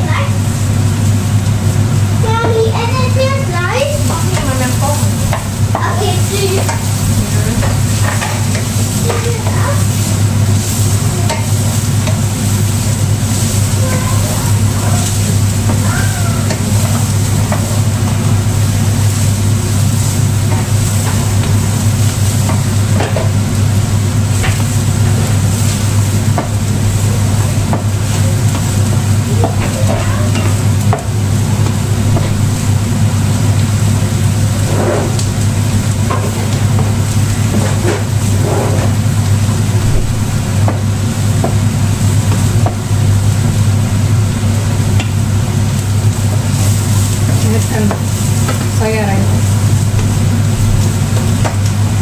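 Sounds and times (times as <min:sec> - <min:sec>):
steady low hum: 0:00.0 - 0:52.0
vegetables sizzling in frying pans: 0:00.0 - 0:52.0
wooden spatulas scraping pans: 0:04.0 - 0:23.4, 0:34.6 - 0:35.3.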